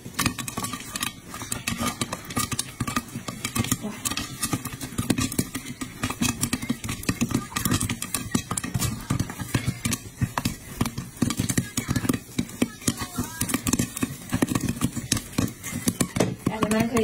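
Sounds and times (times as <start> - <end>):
popcorn popping in a pot: 0.0 - 17.0.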